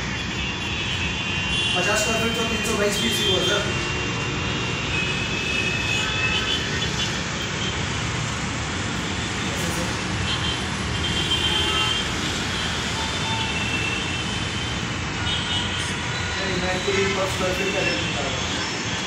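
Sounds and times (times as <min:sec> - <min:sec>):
road traffic noise: 0:00.0 - 0:19.0.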